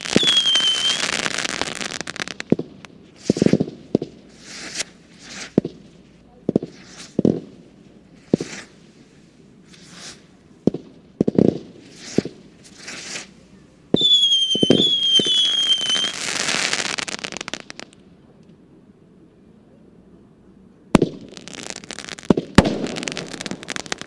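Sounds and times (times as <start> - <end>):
whistling firework shots: 0.0 - 2.2, 13.9 - 17.8, 21.0 - 24.0
firework bangs: 0.0 - 8.8, 9.6 - 17.9, 20.9 - 24.0
firework crackling: 0.0 - 18.0, 20.9 - 24.0
firework launches hissing: 3.2 - 5.7, 6.6 - 7.4, 8.2 - 9.0, 9.6 - 10.4, 11.3 - 17.9.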